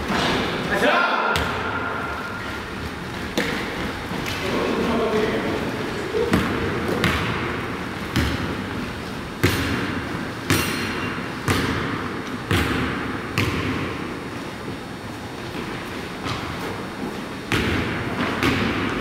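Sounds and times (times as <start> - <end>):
basketball bouncing on hardwood: 6.3 - 8.7, 17.5 - 18.9.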